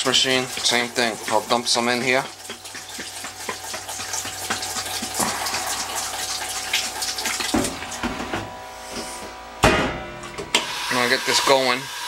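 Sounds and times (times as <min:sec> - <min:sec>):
liquid pouring and splashing: 0:00.0 - 0:08.3.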